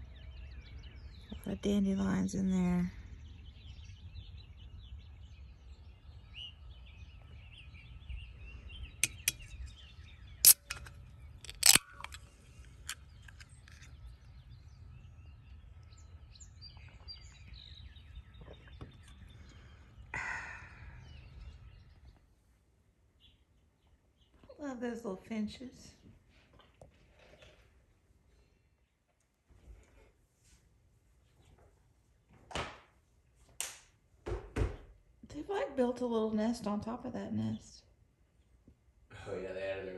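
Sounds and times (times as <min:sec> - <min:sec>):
birds chirping: 0:00.0 - 0:22.2
low wind rumble: 0:02.2 - 0:18.4
sharp loud clicks: 0:09.0 - 0:09.4, 0:10.4 - 0:13.9.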